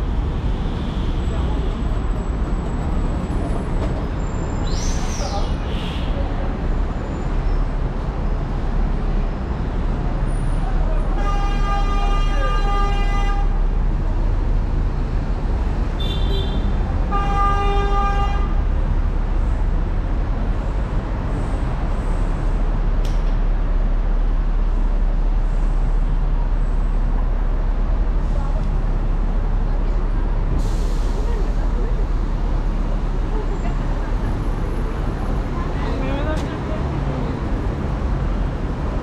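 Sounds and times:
street traffic: 0.0s - 39.0s
vehicle horn honking: 11.2s - 13.6s.

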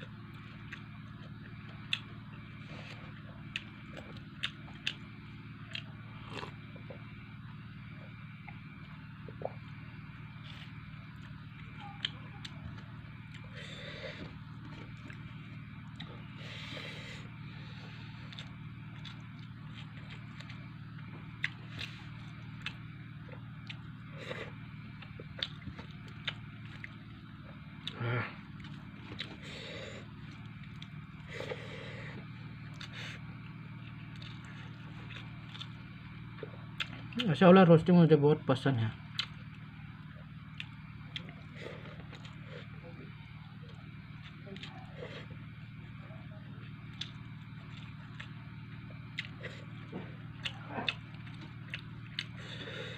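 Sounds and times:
person chewing food: 0.0s - 37.3s, 39.1s - 52.9s
steady low hum: 0.0s - 52.9s
mouth smacks and clicks: 50.4s - 52.4s.

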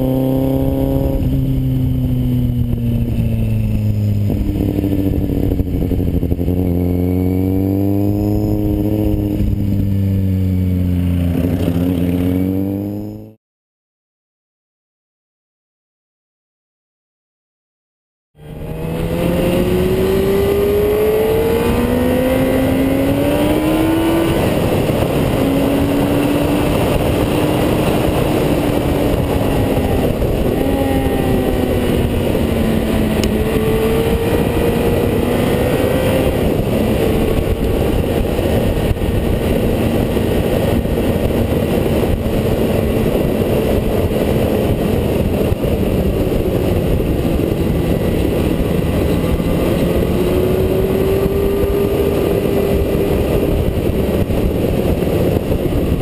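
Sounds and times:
wind and road noise: 0.0s - 13.4s, 18.4s - 56.0s
car engine accelerating: 18.4s - 56.0s.

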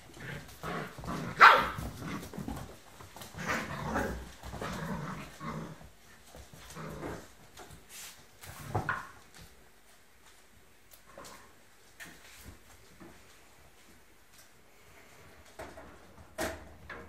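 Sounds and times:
puppies growling: 0.0s - 7.4s
puppies barking: 1.3s - 1.8s.

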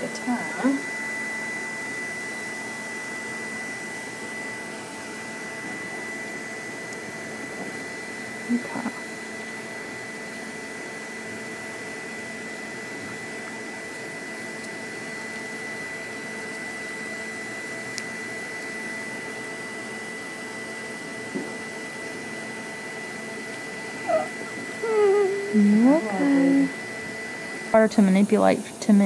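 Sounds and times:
faint high tone: 24.1s - 26.7s.

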